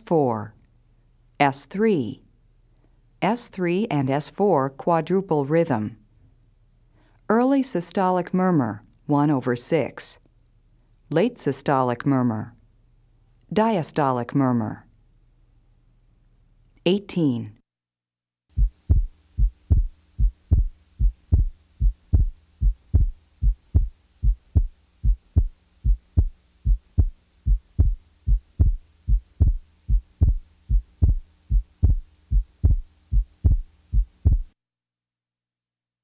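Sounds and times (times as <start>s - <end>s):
heartbeat sounds: 18.5s - 34.6s
faint hum: 18.6s - 34.5s.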